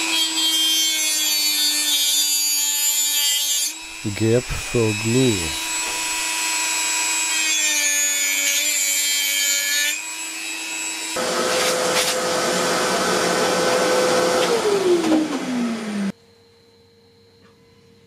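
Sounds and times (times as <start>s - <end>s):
rotary tool grinding with a whine: 3.0s - 4.0s, 5.6s - 12.2s.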